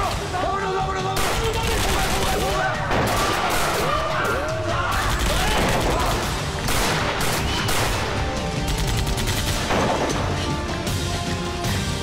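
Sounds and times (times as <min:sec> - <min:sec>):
handgun gunfire: 0:05.0 - 0:10.3.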